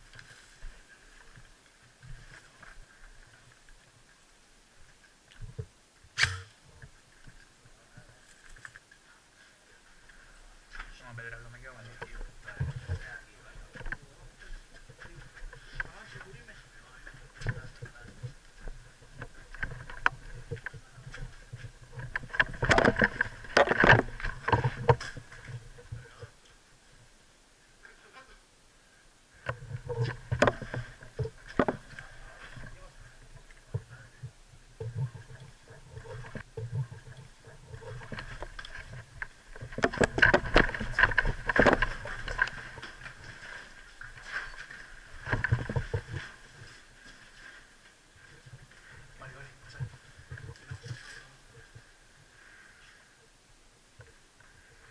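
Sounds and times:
clicks and knocks from gear: 0:19.2 - 0:25.9, 0:37.8 - 0:46.3.

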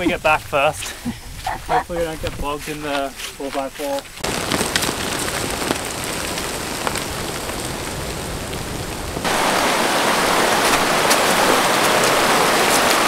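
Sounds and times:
steady rushing noise: 0:04.2 - 0:13.0
shallow rocky river rushing: 0:09.2 - 0:13.0.

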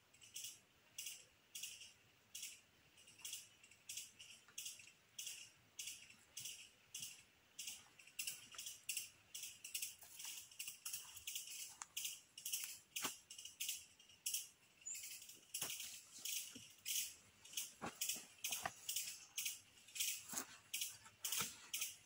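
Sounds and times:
insects rattling calls: 0:00.1 - 0:22.0.

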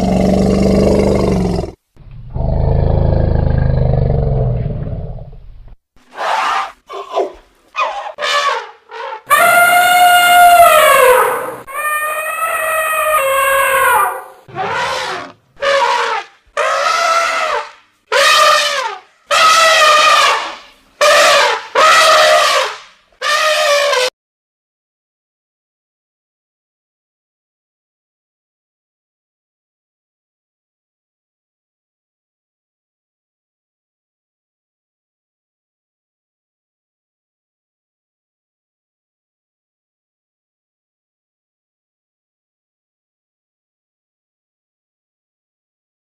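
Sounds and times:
deep animal roars: 0:00.0 - 0:05.5
elephant trumpeting: 0:06.1 - 0:24.1.

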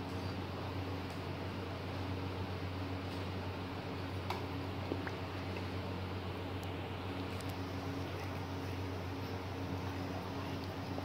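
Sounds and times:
constant low hum: 0:00.0 - 0:11.0
room tone hiss: 0:00.0 - 0:11.0.

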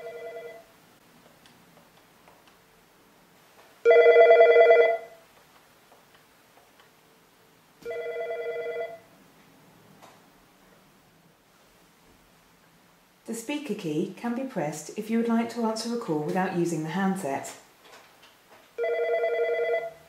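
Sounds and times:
desk phone ringing: 0:00.0 - 0:00.7, 0:03.8 - 0:05.2, 0:07.8 - 0:09.1, 0:18.8 - 0:20.0.

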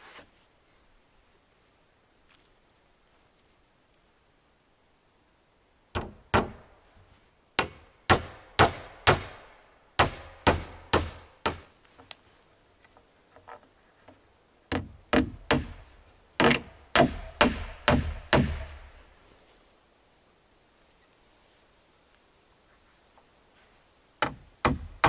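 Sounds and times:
hammer driving nails into wood: 0:06.0 - 0:06.6, 0:07.6 - 0:09.4, 0:10.0 - 0:11.7, 0:14.7 - 0:15.8, 0:16.4 - 0:18.8, 0:24.2 - 0:25.0.

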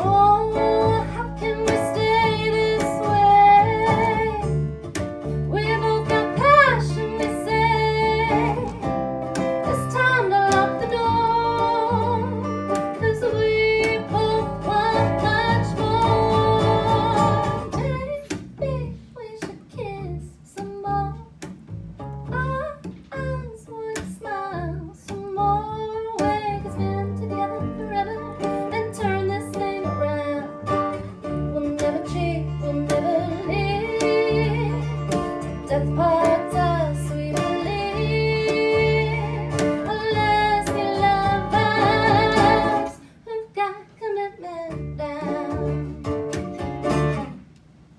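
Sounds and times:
woman singing: 0:00.0 - 0:04.6, 0:05.3 - 0:21.5, 0:22.3 - 0:46.2
upright double bass: 0:00.0 - 0:43.0, 0:44.7 - 0:47.4
strummed ukulele: 0:00.0 - 0:43.1, 0:44.6 - 0:47.5
acoustic guitar: 0:00.0 - 0:47.9.

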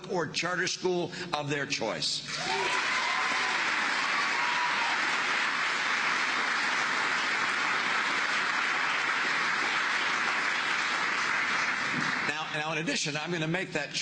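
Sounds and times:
audience applauding: 0:02.3 - 0:12.7.

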